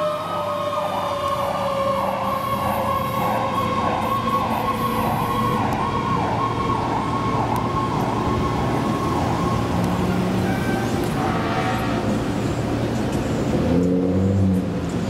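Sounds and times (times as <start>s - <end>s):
electronic siren warbling: 0.0s - 10.2s.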